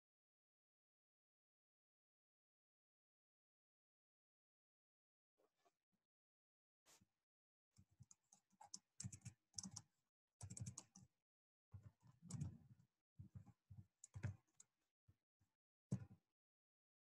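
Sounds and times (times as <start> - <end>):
faint keyboard typing: 8.0 - 11.1, 12.2 - 12.6, 14.0 - 14.7.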